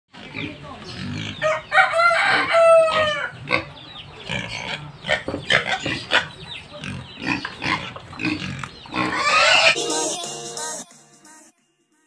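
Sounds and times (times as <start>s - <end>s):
pigs squealing and grunting: 0.2s - 9.8s
rooster crowing: 1.4s - 3.4s.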